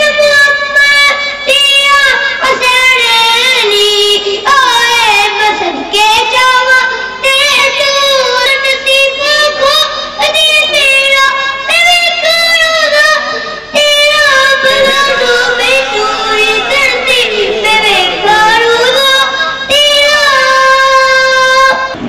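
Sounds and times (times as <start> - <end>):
high voice singing unaccompanied: 14.3 - 20.8.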